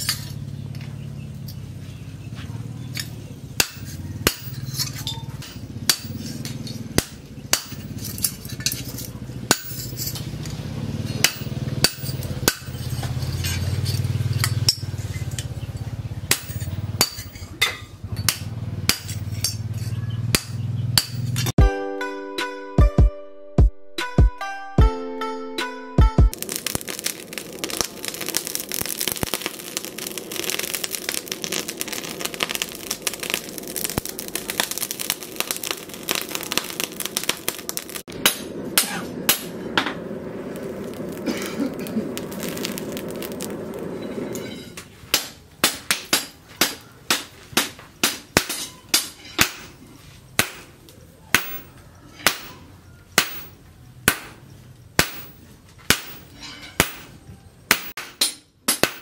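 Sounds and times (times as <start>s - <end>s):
hammer striking steel on anvil: 3.0s - 10.2s, 11.1s - 15.5s, 16.3s - 21.5s, 38.0s - 40.0s, 44.3s - 49.8s, 50.4s - 59.0s
forge fire crackling: 26.3s - 58.0s
steady rushing noise: 26.4s - 44.9s.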